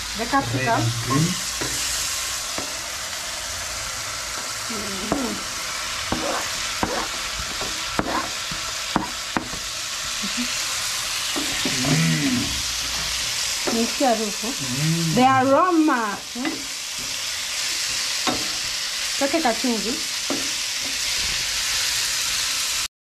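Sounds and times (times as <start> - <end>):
vegetables sizzling in a pan: 0.0 - 22.9
wooden spoon scraping a pan: 0.2 - 2.0, 6.0 - 9.6, 11.2 - 14.6
spoon tapping a pan: 6.1 - 9.6, 11.4 - 11.8, 16.4 - 17.1, 18.2 - 18.6, 20.3 - 21.0.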